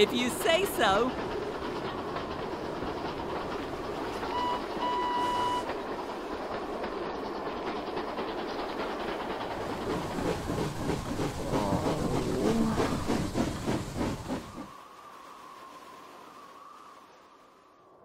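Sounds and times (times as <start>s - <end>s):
steam train rumbling on rails: 0.0s - 16.6s
train whistle blowing: 4.2s - 5.7s.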